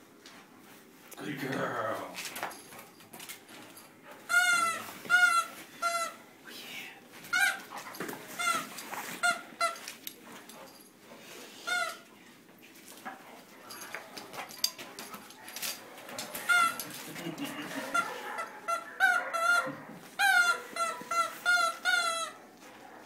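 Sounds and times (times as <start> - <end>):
squeaky dog toy squeaks: 4.3 - 6.2, 7.3 - 7.7, 8.3 - 9.9, 11.6 - 12.1, 16.4 - 17.1, 17.7 - 18.1, 18.7 - 22.4.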